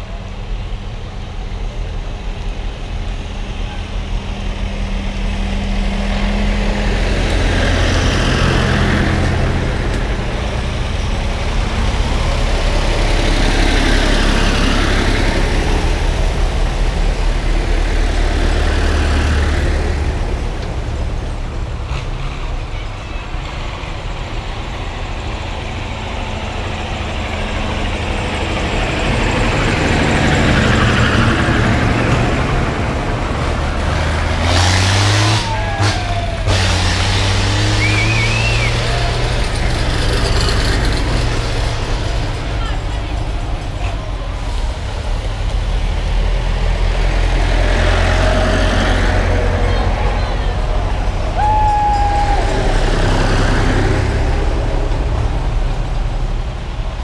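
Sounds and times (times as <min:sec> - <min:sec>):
steady tractor engine hum: 0:00.0 - 0:57.0
tractor engines passing: 0:00.0 - 0:57.0.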